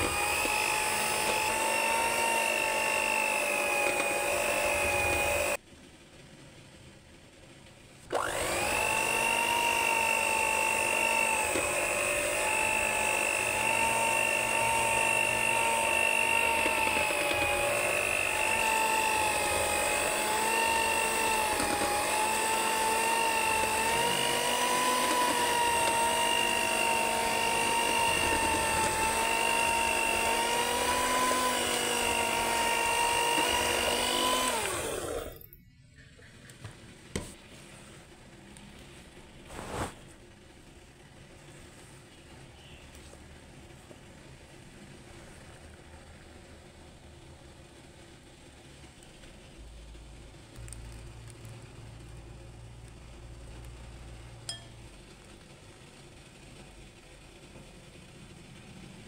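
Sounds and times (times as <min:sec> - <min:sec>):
electric hand mixer whining: 0:00.0 - 0:05.6, 0:08.1 - 0:35.5.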